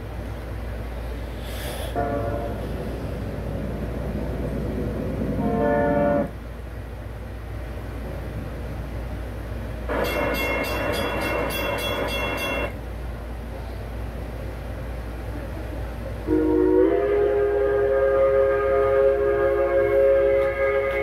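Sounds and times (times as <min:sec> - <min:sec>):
steady low hum: 0:00.0 - 0:21.0
train horn blasts: 0:01.9 - 0:02.7, 0:05.4 - 0:06.4, 0:09.9 - 0:12.7, 0:16.3 - 0:21.0.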